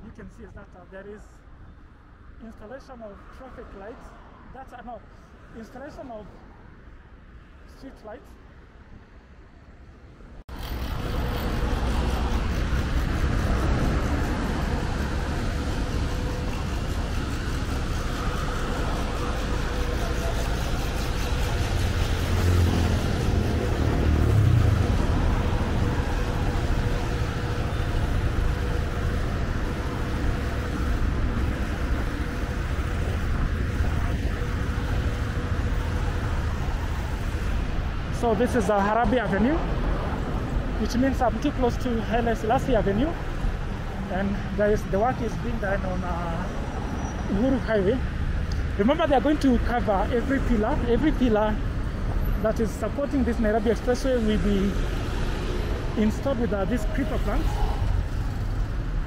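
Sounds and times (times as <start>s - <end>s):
highway traffic rushing by: 0.0s - 59.0s
vehicle passing close: 10.5s - 59.0s.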